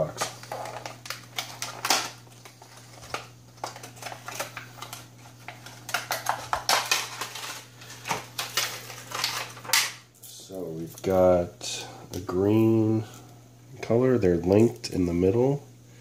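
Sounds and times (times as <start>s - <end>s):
plastic package clicking and crackling: 0.1s - 10.0s.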